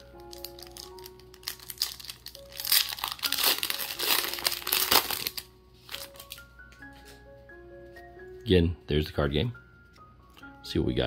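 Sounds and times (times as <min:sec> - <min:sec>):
foil wrapper tearing and crinkling: 0:00.0 - 0:06.4
soft mallet background music: 0:00.0 - 0:11.0.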